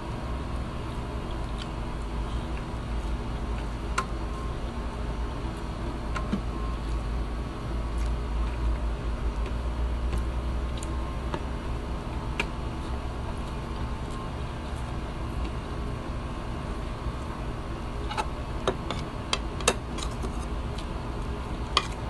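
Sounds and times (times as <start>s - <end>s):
steady low hum: 0.0s - 22.0s
person chewing: 0.8s - 3.8s, 7.8s - 11.6s, 20.0s - 22.0s.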